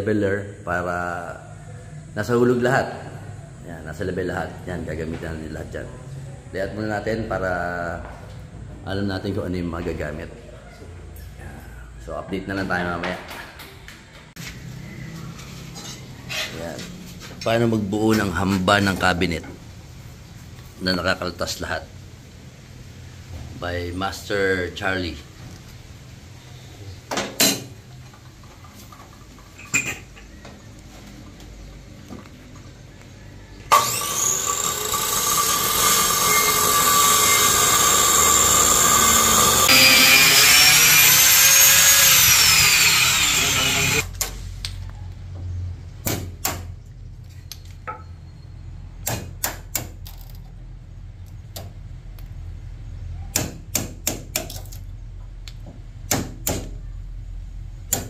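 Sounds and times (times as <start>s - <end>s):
angle grinder cutting wood: 33.7s - 44.1s
hammer striking chisel: 49.0s - 50.0s, 53.3s - 54.6s.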